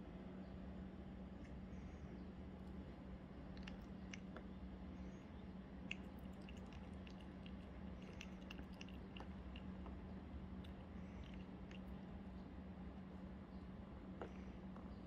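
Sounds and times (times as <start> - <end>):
steady low hum: 0.0 - 15.0
dog chewing wetly: 5.9 - 10.0.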